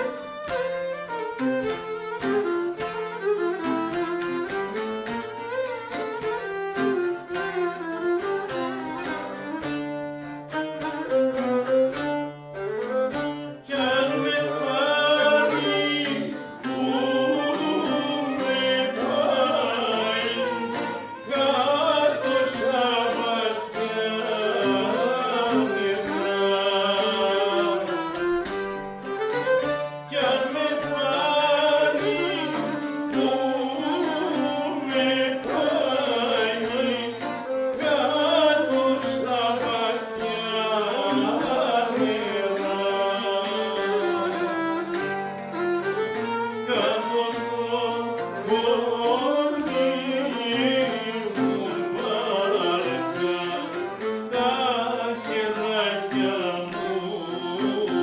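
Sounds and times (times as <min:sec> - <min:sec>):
plucked lute: 0:00.0 - 0:58.0
violin melody: 0:00.0 - 0:58.0
man singing: 0:13.5 - 0:28.4, 0:30.1 - 0:44.8, 0:46.6 - 0:58.0.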